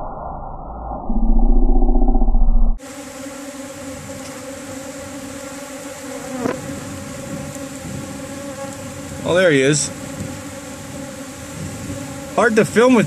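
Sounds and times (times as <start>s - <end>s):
muffled low hum: 0.0s - 2.8s
bees buzzing: 2.8s - 13.0s.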